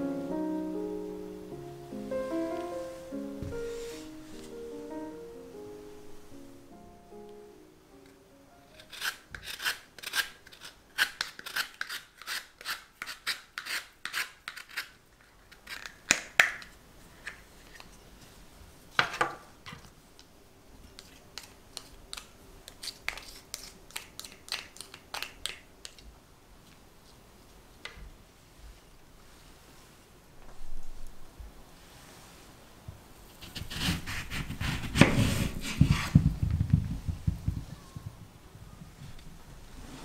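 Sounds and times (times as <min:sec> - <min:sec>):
grater rasping: 0:08.8 - 0:15.9, 0:33.4 - 0:36.2.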